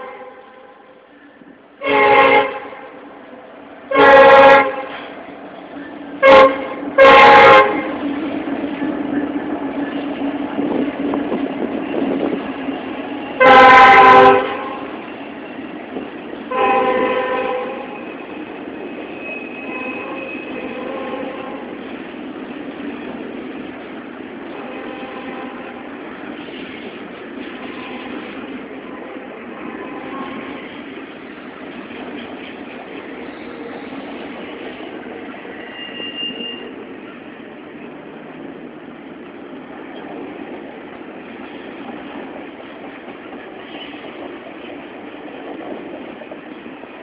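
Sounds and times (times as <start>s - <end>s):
locomotive air horn blasts: 0.0s - 0.9s, 1.8s - 3.0s, 3.9s - 5.0s, 6.2s - 8.0s, 13.4s - 14.9s, 16.5s - 18.0s, 19.6s - 21.7s, 24.6s - 25.8s, 27.6s - 30.6s
freight train rumbling past: 0.0s - 47.0s.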